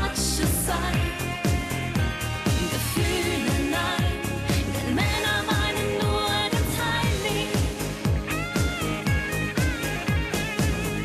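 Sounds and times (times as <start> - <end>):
woman singing pop song: 0.0 - 8.9
band backing music: 0.0 - 11.0
steady kick drum: 0.5 - 11.0.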